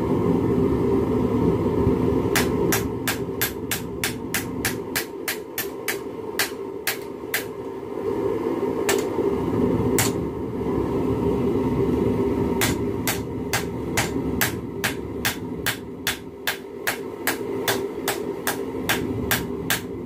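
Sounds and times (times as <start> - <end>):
hammer striking metal on anvil: 2.3 - 7.6, 8.9 - 9.1, 10.0 - 10.2, 12.6 - 19.9.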